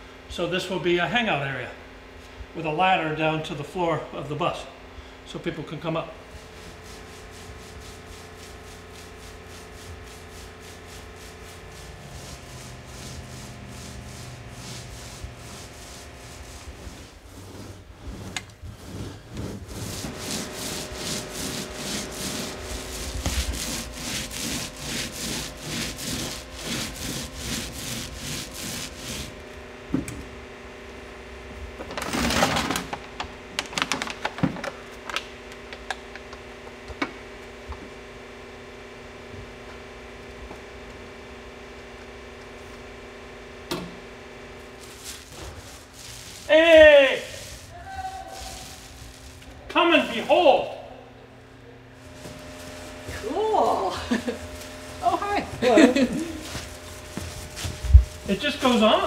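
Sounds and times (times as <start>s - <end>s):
paintbrush brushing on metal: 6.6s - 29.3s, 44.8s - 50.3s, 52.0s - 59.0s
rough scrape: 6.6s - 29.4s, 44.8s - 50.4s, 52.0s - 53.4s, 54.1s - 59.0s.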